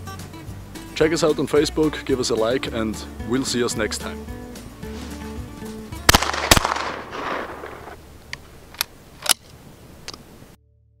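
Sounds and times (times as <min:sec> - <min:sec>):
shotgun shots with echo: 0:06.1 - 0:08.0
shotgun action metallic clicks: 0:06.1 - 0:10.2.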